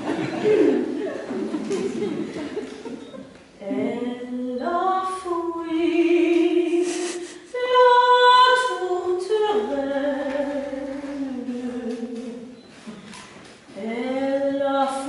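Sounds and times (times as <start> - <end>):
woman singing operetta: 3.6 - 12.6, 13.7 - 15.0.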